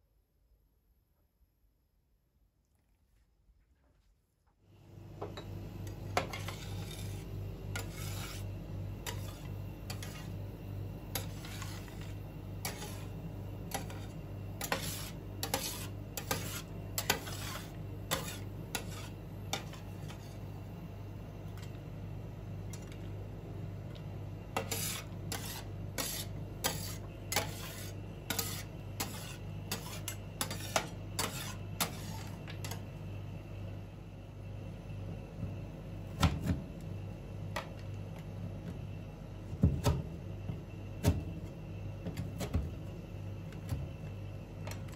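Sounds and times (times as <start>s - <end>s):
metal spatulas scraping a cold plate: 6.2s - 10.4s, 11.1s - 20.4s, 24.6s - 32.8s.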